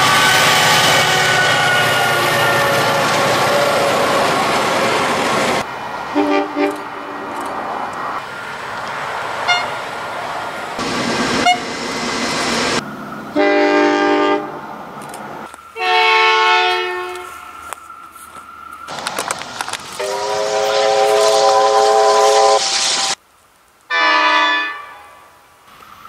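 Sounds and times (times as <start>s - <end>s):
locomotive horns: 0.0s - 4.6s, 6.1s - 7.4s, 9.5s - 9.8s, 11.4s - 11.7s, 13.4s - 14.6s, 15.8s - 17.8s, 20.0s - 22.7s, 23.9s - 25.2s
locomotive passing: 0.0s - 23.2s.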